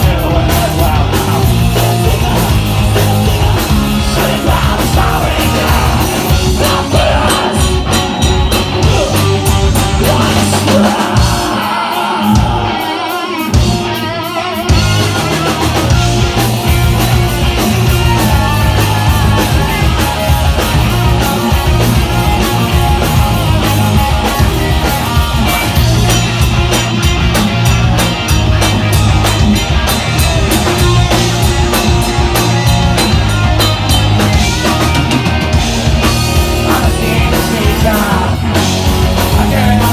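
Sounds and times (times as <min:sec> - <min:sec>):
person singing: 0:00.0 - 0:14.4, 0:36.3 - 0:39.9
drum kit: 0:00.0 - 0:39.9
electric guitars: 0:00.0 - 0:39.9.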